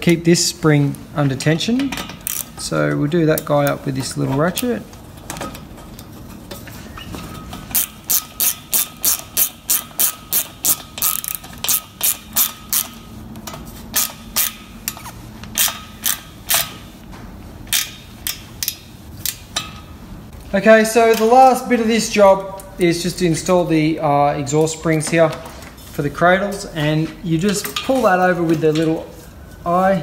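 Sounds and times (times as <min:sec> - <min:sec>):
hand ratchet clicking: 0:01.8 - 0:02.6, 0:07.7 - 0:16.8, 0:17.7 - 0:19.8.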